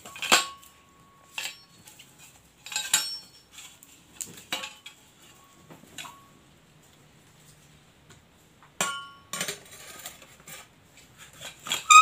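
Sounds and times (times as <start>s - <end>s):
metal exhaust parts clinking: 0.0s - 6.4s.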